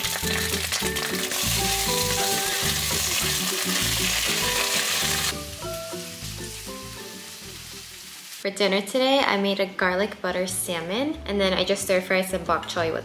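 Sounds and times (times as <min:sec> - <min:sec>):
background music with beat: 0:00.0 - 0:07.9
food sizzling in frying pan: 0:00.0 - 0:08.5.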